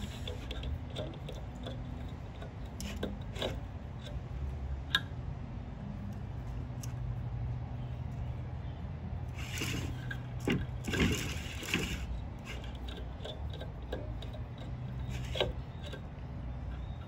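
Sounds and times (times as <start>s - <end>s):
fishing line rubbing and scraping: 0.0s - 1.5s, 9.3s - 13.6s.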